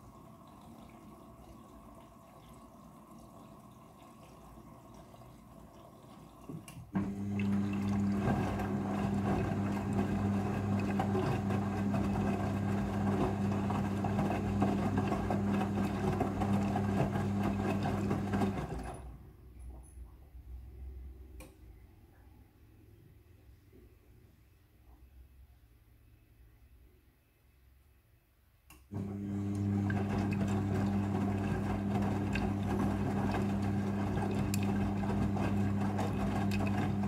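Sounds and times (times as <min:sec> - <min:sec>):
water trickling in: 0:00.0 - 0:08.2
washing machine motor humming: 0:00.0 - 0:19.2, 0:28.9 - 0:37.0
faint click: 0:28.7 - 0:28.9.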